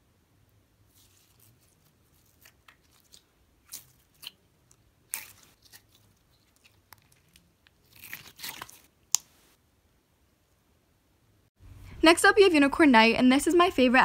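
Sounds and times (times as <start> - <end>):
slime squelching: 0.8 - 9.5.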